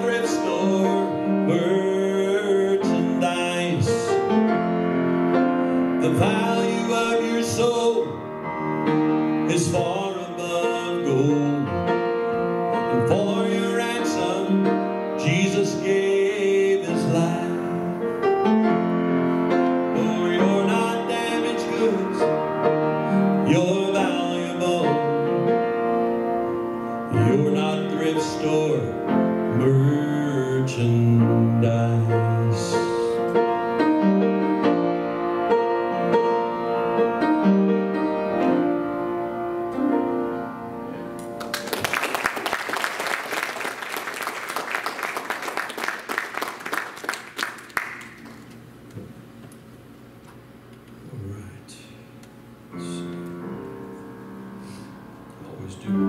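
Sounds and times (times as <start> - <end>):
person singing: 0.0 - 4.3, 9.5 - 12.0, 12.9 - 18.0, 19.9 - 22.4, 23.2 - 25.4, 27.1 - 33.3
piano accompaniment: 0.0 - 49.4, 52.5 - 56.0
applause: 41.4 - 48.6.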